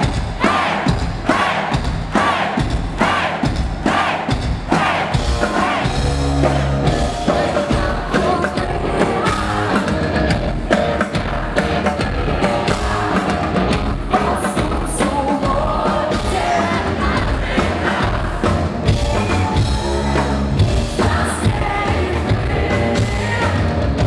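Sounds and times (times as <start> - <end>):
rock band playing live: 0.0 - 24.0
female lead voice singing: 6.4 - 18.6, 19.4 - 24.0.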